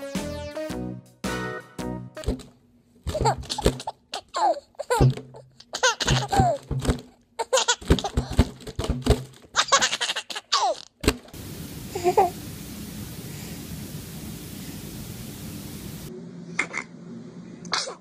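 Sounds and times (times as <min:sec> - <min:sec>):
infant giggling and squealing: 0:03.1 - 0:06.6, 0:09.6 - 0:10.9
steady hiss: 0:11.4 - 0:16.1.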